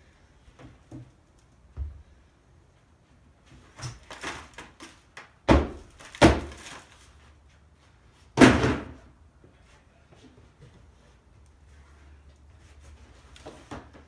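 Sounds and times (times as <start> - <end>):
plastic bins rustling and clattering: 3.6 - 7.3.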